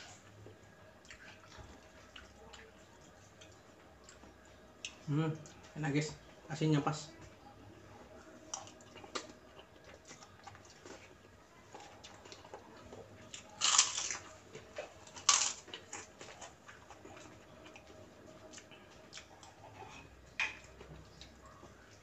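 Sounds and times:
soft chewing: 0.0s - 6.5s, 7.1s - 22.0s
crisp cracker crunches: 13.4s - 14.3s, 15.1s - 16.0s.

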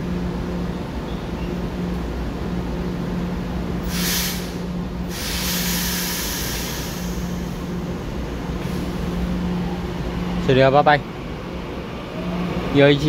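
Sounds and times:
train steady hum: 0.0s - 13.0s
air brake hissing: 3.8s - 7.8s.

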